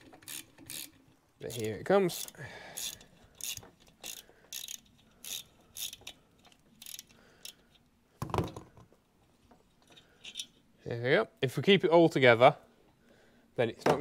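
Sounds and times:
socket ratchet clicking: 0.2 - 7.7.

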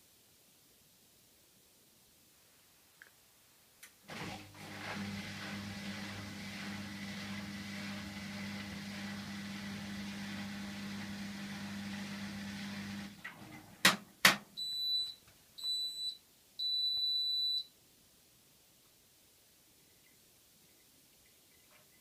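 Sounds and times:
washing machine humming: 4.0 - 13.9.

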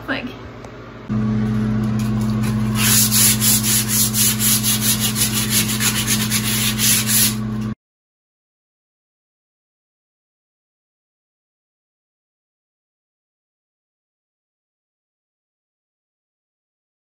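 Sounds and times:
steady low hum: 0.0 - 7.8
sandpaper rubbing wood: 2.5 - 7.4.

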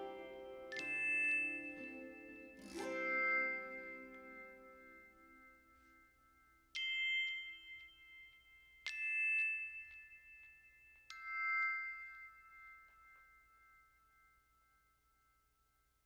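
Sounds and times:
plucked-string tune: 0.0 - 5.5.

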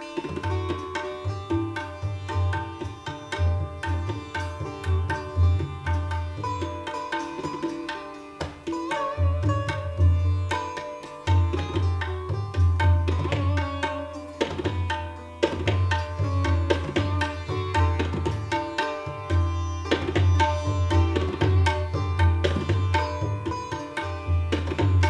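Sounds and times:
plucked sitar melody: 0.0 - 25.0
tabla strokes: 0.0 - 25.0.

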